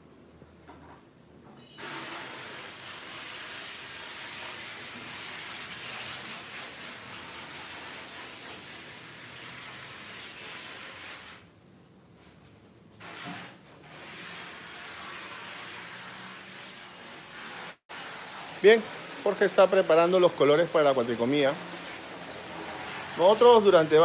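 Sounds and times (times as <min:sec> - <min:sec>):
gas heater hissing: 0:13.9 - 0:24.0.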